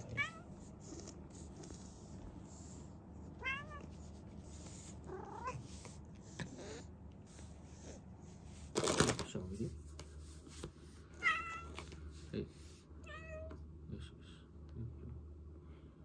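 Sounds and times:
cat meowing: 0:00.0 - 0:00.5, 0:03.4 - 0:03.9, 0:05.1 - 0:05.6, 0:11.2 - 0:11.7.

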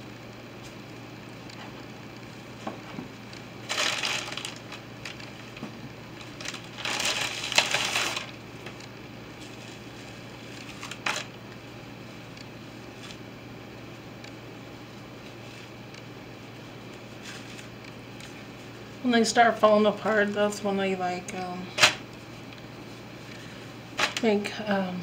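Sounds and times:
tortillas rustling: 0:03.6 - 0:13.3, 0:16.5 - 0:18.8.

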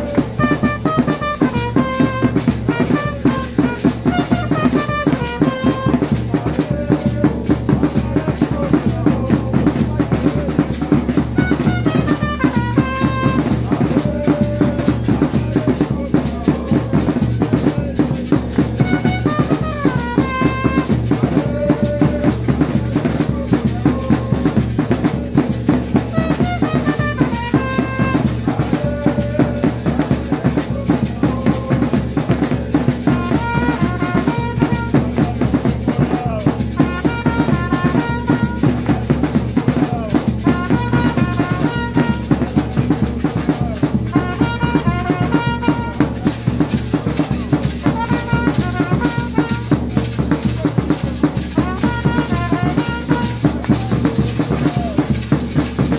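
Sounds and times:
trumpet melodic phrases: 0:00.0 - 0:06.5, 0:11.3 - 0:14.3, 0:18.8 - 0:21.9, 0:25.9 - 0:29.6, 0:33.1 - 0:35.4, 0:36.7 - 0:39.0, 0:40.4 - 0:42.6, 0:44.1 - 0:46.4, 0:47.8 - 0:50.0, 0:51.5 - 0:53.9
drums playing fast beat: 0:00.0 - 0:55.9.

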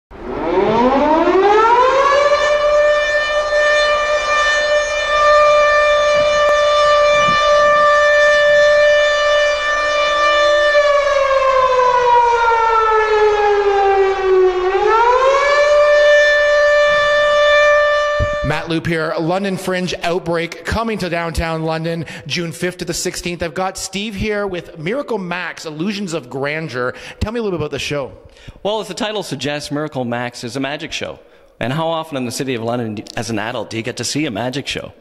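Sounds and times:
civil defence siren wailing: 0:00.1 - 0:19.4.

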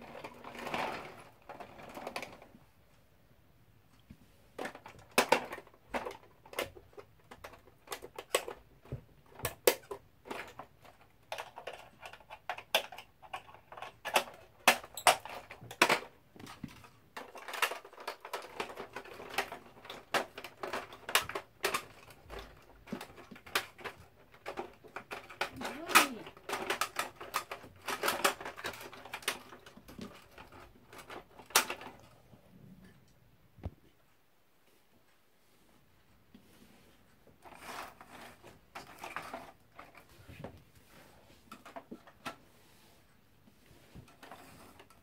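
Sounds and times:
hard plastic clicks and clacks: 0:04.6 - 0:32.2.

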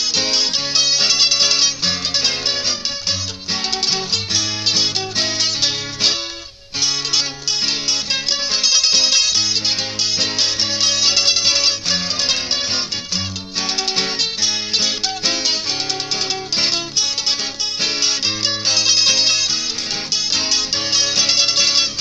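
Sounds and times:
guitar bass notes and chords: 0:00.0 - 0:22.0
mandolin melody: 0:00.0 - 0:22.0.

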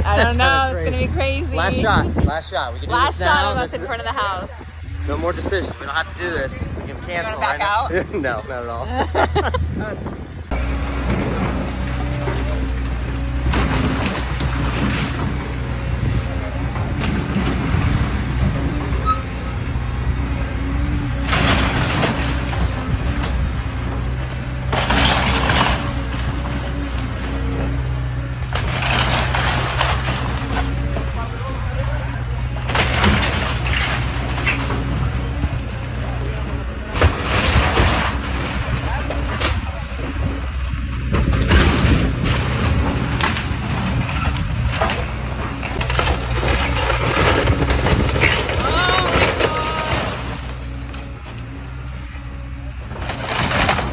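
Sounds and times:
diesel excavator engine running: 0:00.0 - 0:53.9
debris crashing and clattering: 0:10.5 - 0:53.9
wood cracking and splintering: 0:10.5 - 0:53.9.

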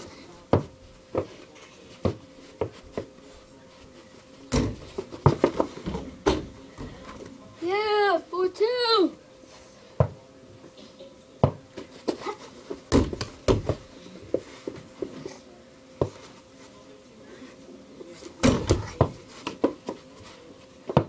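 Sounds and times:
basketball bouncing and hitting rim: 0:04.5 - 0:06.6, 0:12.9 - 0:13.8, 0:18.4 - 0:19.2
feet landing on floor: 0:11.4 - 0:15.1.

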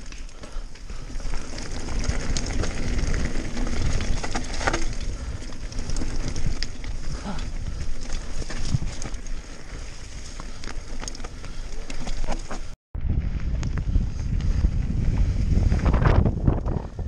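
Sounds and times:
bike clicks and rattles: 0:00.0 - 0:17.0
bike tyres on mud and stones: 0:00.0 - 0:17.0
wind rumble on microphone: 0:12.9 - 0:17.0.

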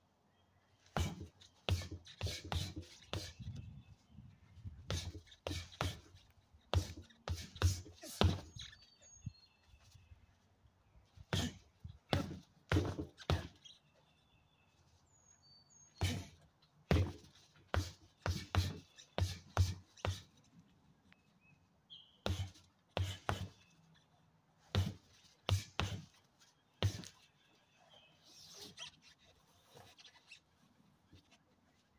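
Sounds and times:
birds chirping: 0:00.0 - 0:31.9
boxing gloves thudding into tyres: 0:00.9 - 0:03.4, 0:04.8 - 0:08.7, 0:11.3 - 0:13.6, 0:16.0 - 0:20.3, 0:22.2 - 0:23.6, 0:24.6 - 0:26.2, 0:26.8 - 0:27.2.

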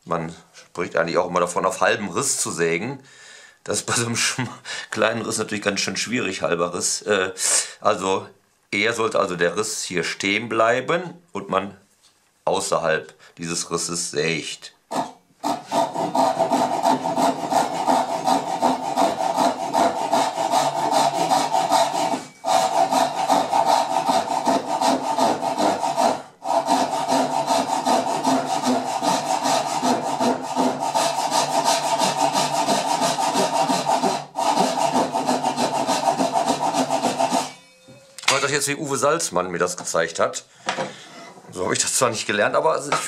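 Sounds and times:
hand saw strokes in wood: 0:14.9 - 0:37.7.

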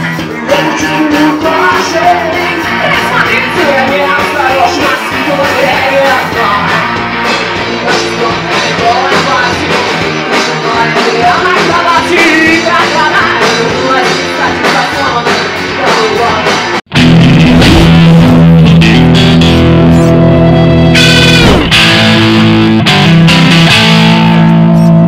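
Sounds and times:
distorted electric guitar riff: 0:00.0 - 0:25.0
rock band playing with singing: 0:00.0 - 0:25.0.

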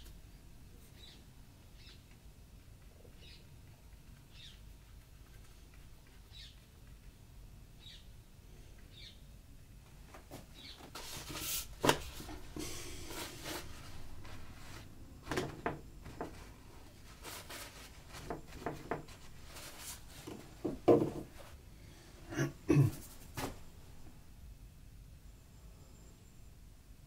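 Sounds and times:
brush rubbing on paper: 0:10.9 - 0:14.9, 0:16.4 - 0:20.4
dull knocks: 0:20.3 - 0:21.4.

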